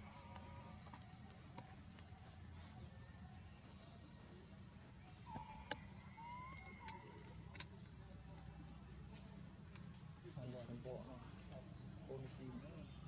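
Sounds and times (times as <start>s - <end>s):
faint chirps: 0.0s - 13.0s
insects droning at a high pitch: 0.0s - 13.0s
sharp clicks: 6.8s - 7.7s.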